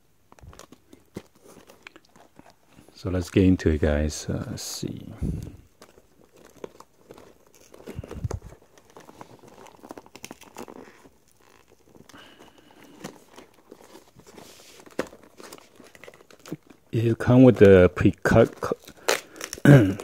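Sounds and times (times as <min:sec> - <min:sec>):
blister package crinkling: 0:00.2 - 0:03.8, 0:04.5 - 0:20.0.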